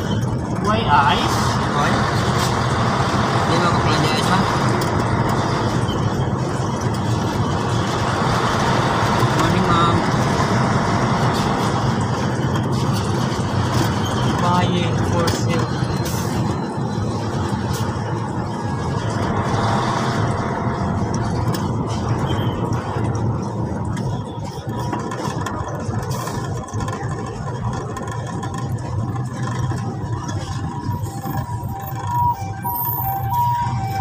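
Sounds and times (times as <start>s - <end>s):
diesel truck engine running: 0.0s - 34.0s
road noise: 0.0s - 34.0s.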